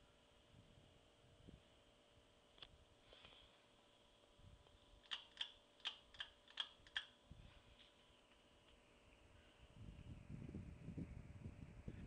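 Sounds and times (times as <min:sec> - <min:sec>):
ceiling fan hum: 0:00.0 - 0:12.0
sharp clicks: 0:05.0 - 0:07.2.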